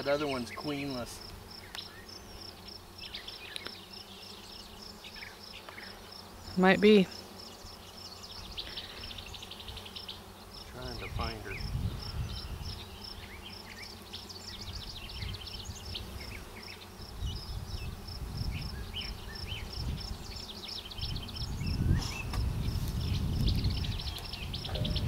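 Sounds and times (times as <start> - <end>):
honeybee colony humming: 0.0 - 25.0
quick bird-like calls: 24.2 - 25.0.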